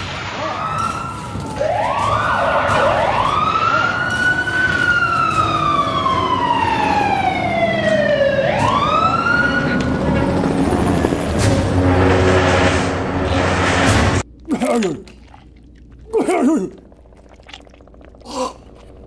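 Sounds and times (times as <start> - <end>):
siren wailing: 0.0 - 13.8
low rumble: 8.7 - 14.4.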